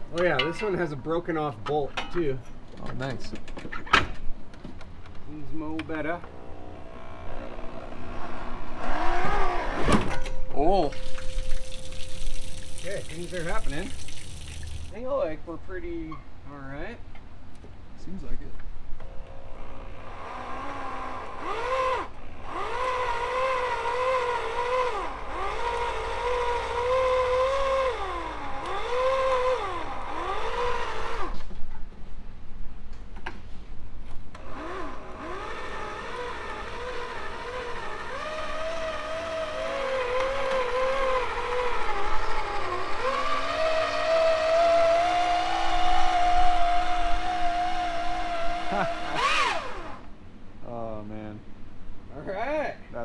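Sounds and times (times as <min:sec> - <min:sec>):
electric hoist motor whining: 0:06.3 - 0:09.6, 0:19.0 - 0:31.4, 0:34.4 - 0:50.1.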